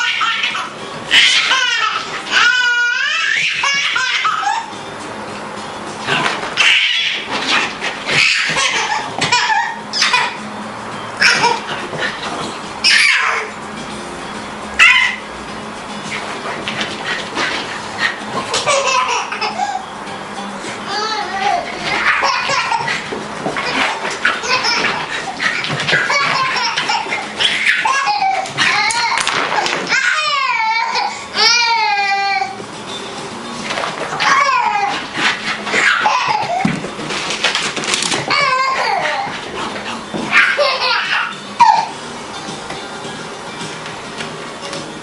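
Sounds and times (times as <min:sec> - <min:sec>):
baby laughing and squealing: 0:00.0 - 0:04.8, 0:06.6 - 0:10.4, 0:11.2 - 0:11.7, 0:12.8 - 0:13.5, 0:14.8 - 0:15.2, 0:18.4 - 0:19.9, 0:20.9 - 0:32.6, 0:34.2 - 0:35.1, 0:35.7 - 0:36.8, 0:38.2 - 0:39.4, 0:40.3 - 0:42.0
dog playing noises: 0:00.0 - 0:45.0.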